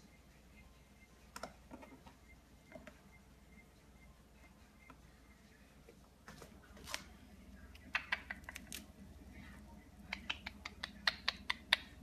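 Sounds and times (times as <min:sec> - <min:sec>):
parrot claws clicking and tapping: 0:07.9 - 0:08.8, 0:10.1 - 0:12.0.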